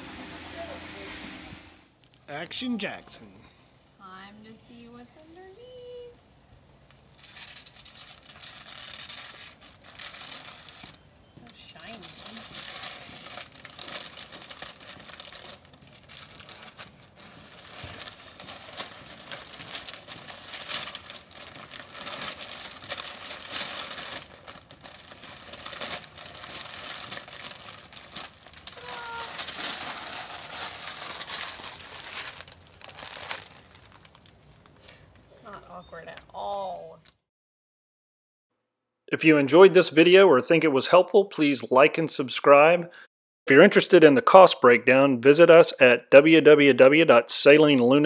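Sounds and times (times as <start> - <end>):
paper and plastic crinkling: 6.9 - 34.8.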